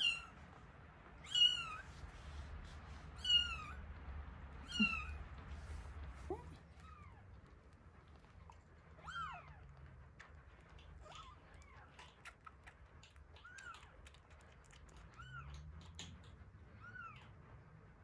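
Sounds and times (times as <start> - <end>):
kittens mewing: 4.6 - 7.5
kitten suckling clicks: 9.5 - 16.6.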